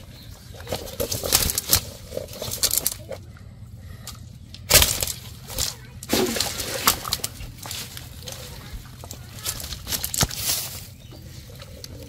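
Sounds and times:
net and fish rustling on dry leaves: 4.7 - 11.6.

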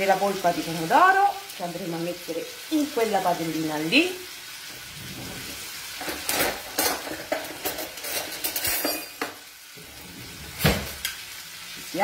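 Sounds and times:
food sizzling in a frying pan: 0.0 - 12.0
wooden spoon scraping a pan: 4.7 - 10.6
utensils clinking on dishes: 6.0 - 9.4.

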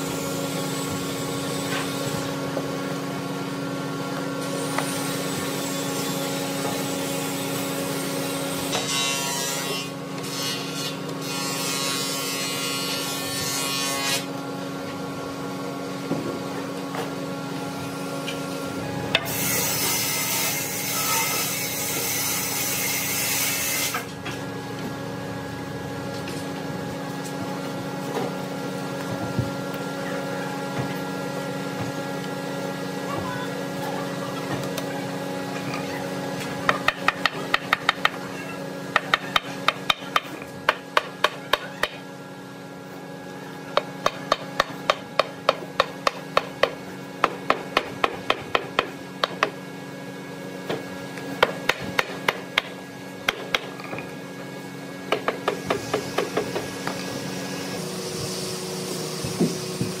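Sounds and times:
hammer tapping wood: 36.7 - 38.2.

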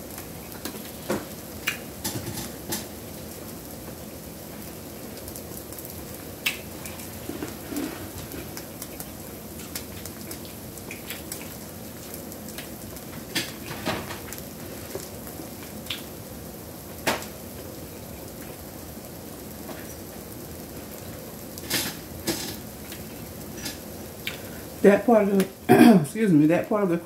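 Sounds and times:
steady background hiss: 0.0 - 27.0.

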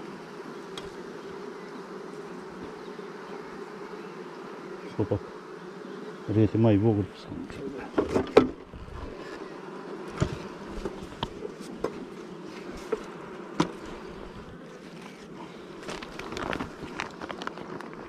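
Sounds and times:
honeybees buzzing: 0.0 - 18.0
plastic sheet rustling: 15.8 - 17.7.

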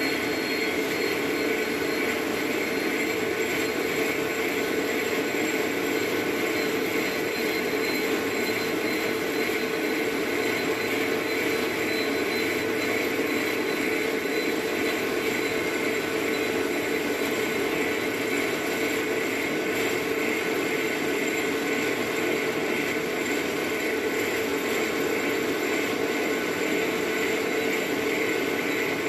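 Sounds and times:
metal lathe humming and whining: 0.0 - 29.0.

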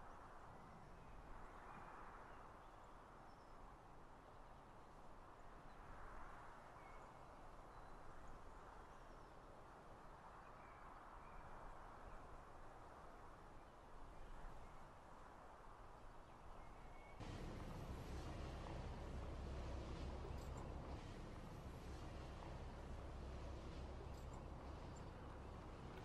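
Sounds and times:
soft outdoor rush: 0.0 - 26.0
distant bird chirps: 16.6 - 26.0.

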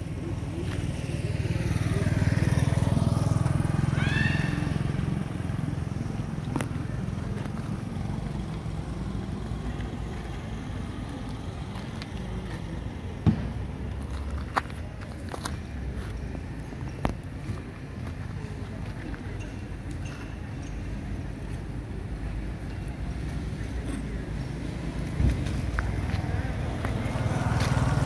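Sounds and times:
motorbike passing: 0.0 - 14.3, 23.6 - 28.0.

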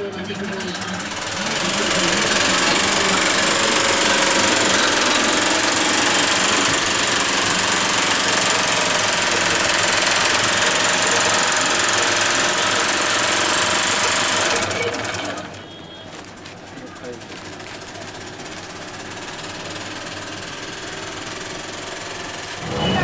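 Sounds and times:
sewing machine needle clattering: 0.3 - 15.6.

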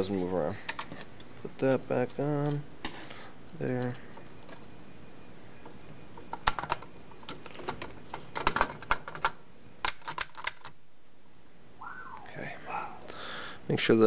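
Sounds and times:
metal parts clicking and knocking: 6.2 - 10.8.

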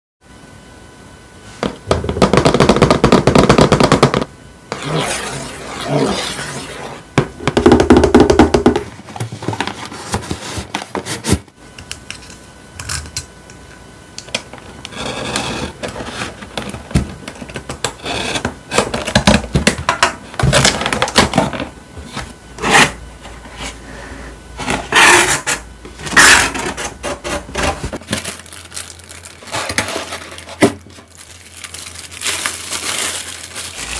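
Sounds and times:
plastic-wrapped parts handling: 27.7 - 33.9.

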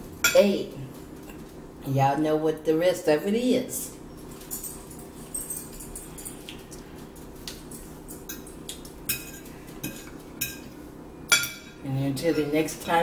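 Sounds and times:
steady low hum: 0.0 - 13.0
forks tapping on plates: 7.7 - 11.8.

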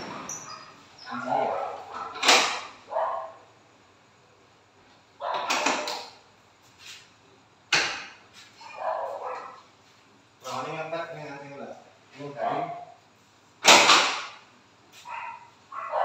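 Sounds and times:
garage door sliding on track: 0.0 - 1.0.

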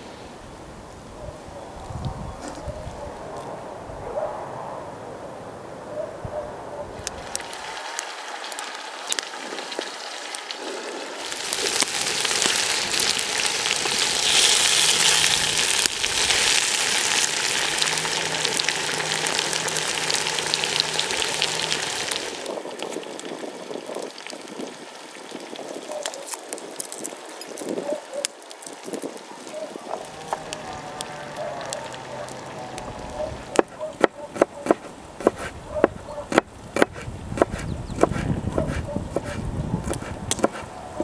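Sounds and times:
food sizzling in a pan: 7.1 - 27.8.

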